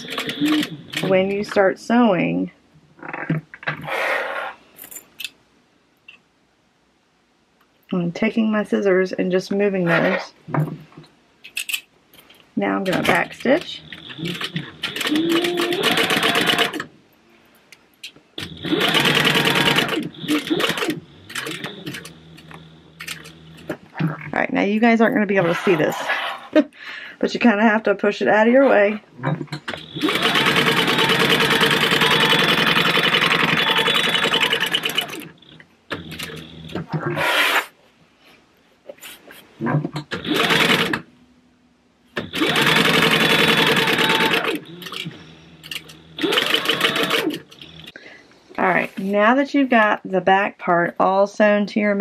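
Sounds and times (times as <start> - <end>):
sewing machine stitching: 0.0 - 1.4, 12.8 - 16.9, 18.4 - 23.8, 29.6 - 37.7, 40.0 - 41.0, 42.2 - 47.9.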